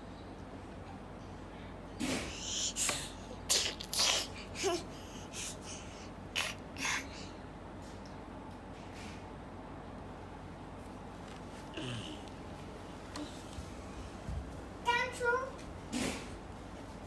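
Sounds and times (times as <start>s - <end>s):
child breathy puffs: 2.0s - 7.4s.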